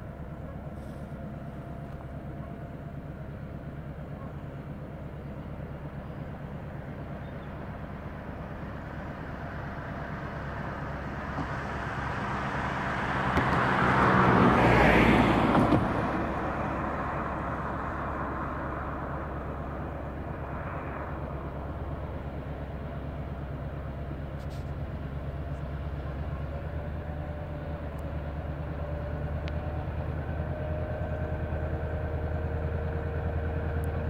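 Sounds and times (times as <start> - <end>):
distant locomotive drone: 0.0 - 34.0
car passing: 10.4 - 23.6.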